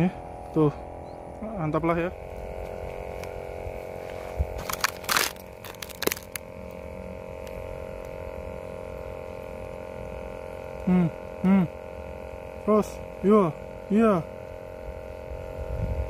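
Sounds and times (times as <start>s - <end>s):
steady hum: 0.0s - 16.0s
short voiced sounds: 10.9s - 11.7s.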